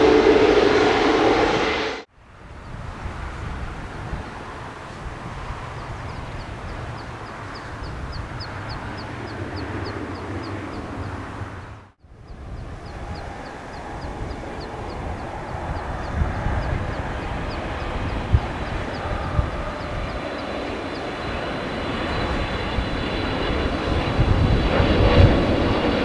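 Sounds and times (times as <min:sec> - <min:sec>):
jet aircraft rumble: 0:00.0 - 0:26.0
high ticking: 0:04.9 - 0:24.1.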